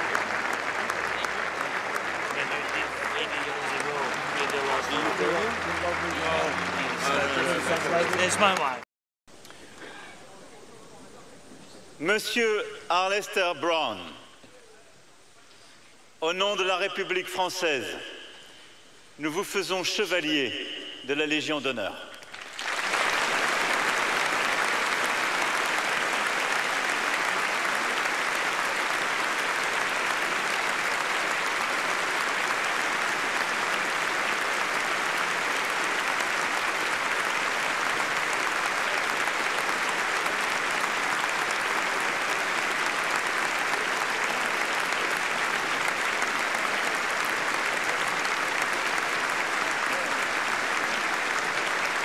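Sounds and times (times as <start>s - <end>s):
large crowd applauding: 0.0s - 8.8s, 21.8s - 52.0s.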